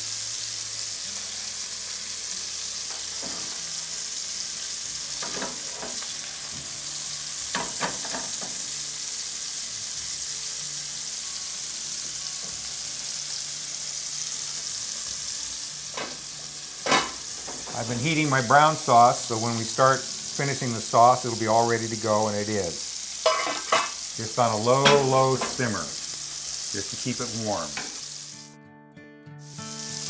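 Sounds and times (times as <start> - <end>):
meat sizzling in a frying pan: 0.0 - 28.6, 29.4 - 30.0
metal fork clinking on pan: 23.2 - 24.0.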